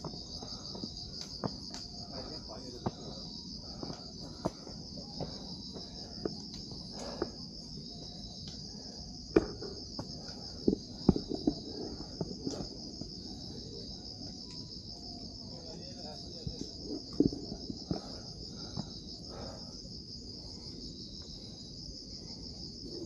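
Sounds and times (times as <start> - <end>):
crickets chirping: 0.0 - 23.0.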